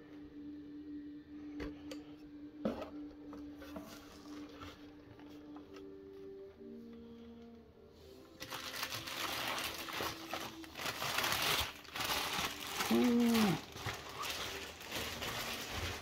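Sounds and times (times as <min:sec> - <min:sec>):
plastic wrapping crinkling: 0:08.3 - 0:16.0
person saying ooh: 0:12.8 - 0:13.7.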